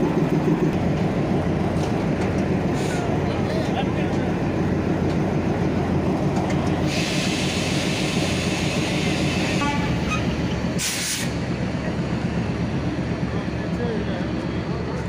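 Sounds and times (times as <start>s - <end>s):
diesel locomotive engine running: 0.0s - 15.0s
short sharp hiss: 10.8s - 11.4s.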